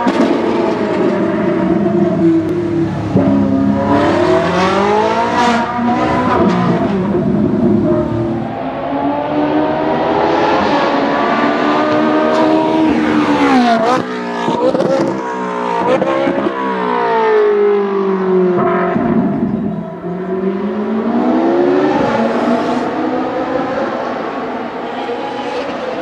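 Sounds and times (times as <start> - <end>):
loud car engine revving: 0.0 - 26.0.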